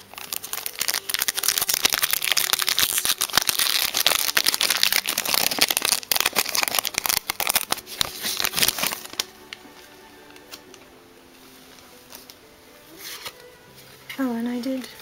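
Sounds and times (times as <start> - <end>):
foil wrapper tearing: 0.0 - 9.4
foil wrapper crinkling: 0.0 - 9.7.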